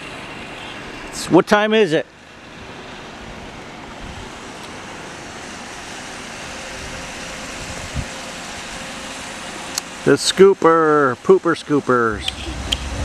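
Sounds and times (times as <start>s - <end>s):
distant loader diesel engine: 0.0s - 13.0s.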